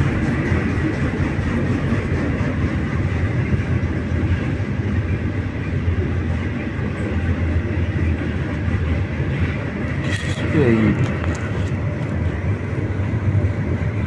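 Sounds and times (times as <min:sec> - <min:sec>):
freight train rumbling past: 0:00.0 - 0:14.0.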